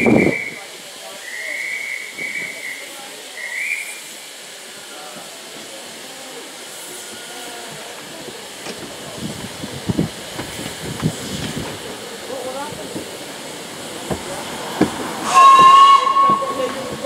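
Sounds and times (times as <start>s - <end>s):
high steam whistle: 0.0s - 5.1s, 15.2s - 17.0s
steam hissing: 0.0s - 17.0s.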